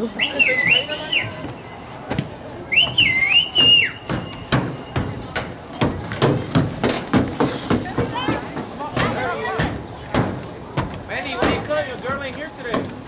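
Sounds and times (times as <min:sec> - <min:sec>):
high whistled call: 0:00.1 - 0:01.8, 0:02.7 - 0:05.1
sharp knocks: 0:03.6 - 0:13.0.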